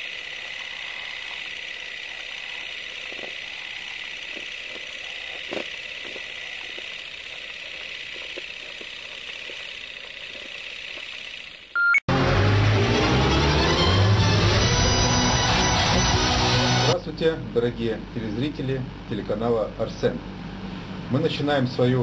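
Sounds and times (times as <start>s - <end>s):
film projector whirring hiss: 0.0s - 11.7s
short beep: 11.8s - 12.0s.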